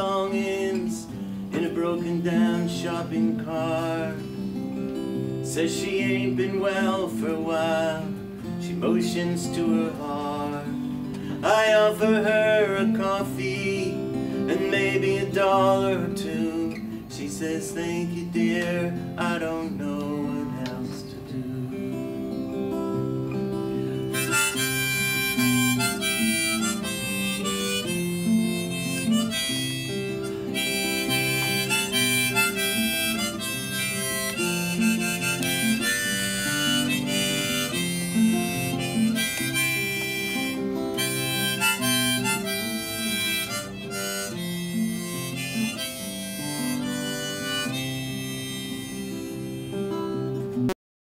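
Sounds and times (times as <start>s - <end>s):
strummed acoustic guitar: 0.0s - 50.8s
harmonica solo: 22.9s - 50.7s.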